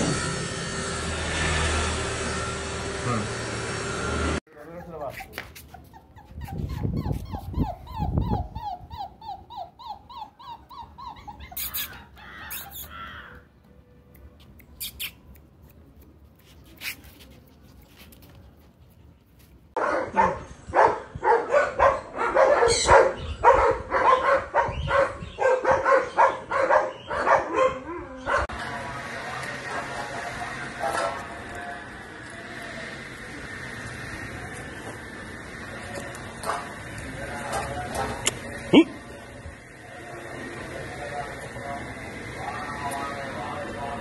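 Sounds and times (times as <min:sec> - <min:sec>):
puppy yelping: 0:04.6 - 0:13.4, 0:21.8 - 0:23.3
dog barking rapidly: 0:19.8 - 0:28.5.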